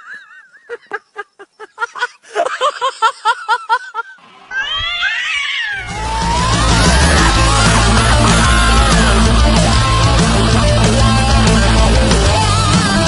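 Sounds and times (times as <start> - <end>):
cat meowing: 4.5 - 6.0
loud music: 5.9 - 13.0.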